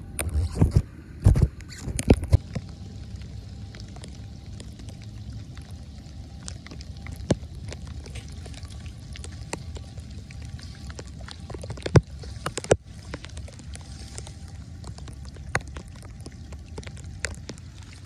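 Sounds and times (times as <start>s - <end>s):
steady low rumble: 0.0s - 18.0s
light rain on wet pavement: 1.7s - 18.0s
tapping drips: 6.4s - 18.0s.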